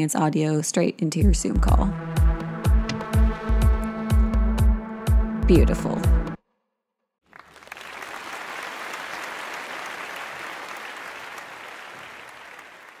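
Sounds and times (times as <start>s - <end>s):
crowd clapping: 7.3s - 13.0s.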